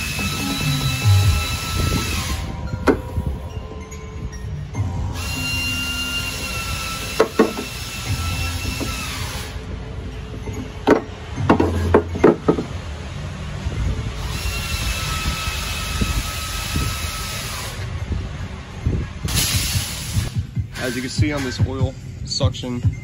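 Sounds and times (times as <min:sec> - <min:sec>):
high-pitched whine: 0:00.0 - 0:23.0.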